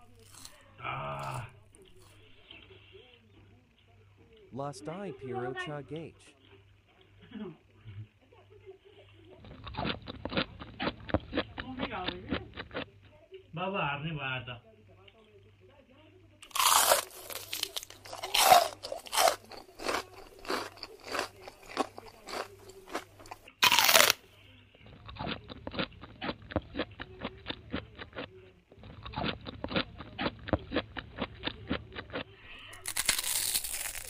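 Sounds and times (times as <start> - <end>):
crunchy food being chewed: 0.0 - 4.5, 9.3 - 13.0, 16.4 - 34.0.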